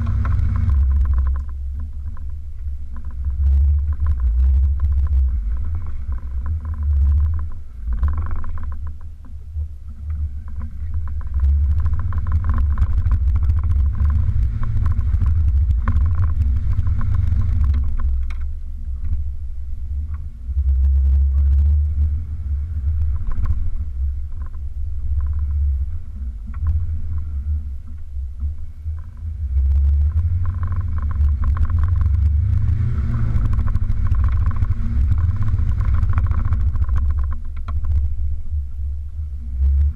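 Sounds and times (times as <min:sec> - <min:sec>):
body and suspension knocks and rattles: 0:00.0 - 0:19.3, 0:30.0 - 0:38.1
off-road vehicle engine running: 0:00.0 - 0:39.9.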